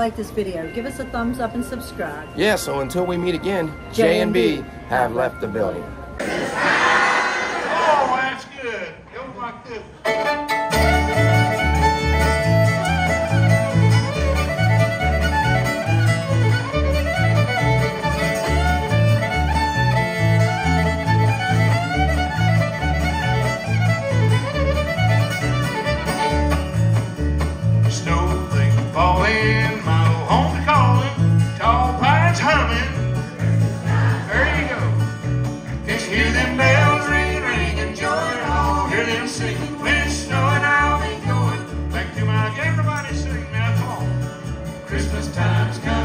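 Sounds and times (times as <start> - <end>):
fiddle playing lead: 10.0 - 27.8
strummed acoustic guitar: 10.1 - 46.0.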